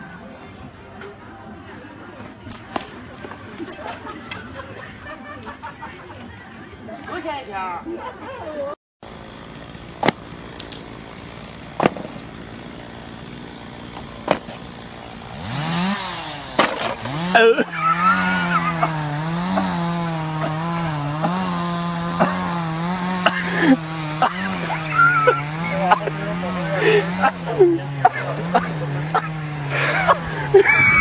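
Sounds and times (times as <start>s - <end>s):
model airplane engine buzzing: 9.0s - 31.0s.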